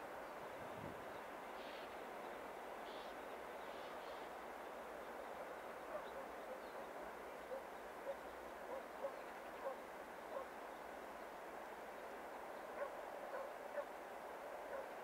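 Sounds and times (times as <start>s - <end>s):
background hiss: 0.0s - 15.0s
distant dog barking: 5.9s - 6.8s, 7.5s - 10.6s, 12.8s - 13.9s, 14.7s - 15.0s.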